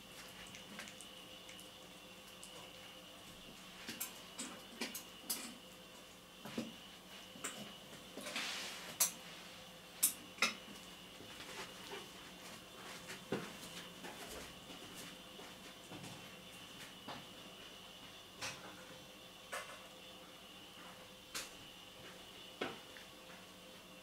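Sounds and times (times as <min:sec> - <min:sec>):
cat chewing wet food: 0:00.0 - 0:04.8.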